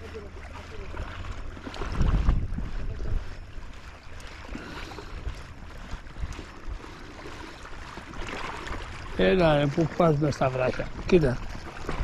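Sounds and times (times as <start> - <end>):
sea water washing on shore: 0.0 - 12.0
wind on microphone: 0.4 - 9.4.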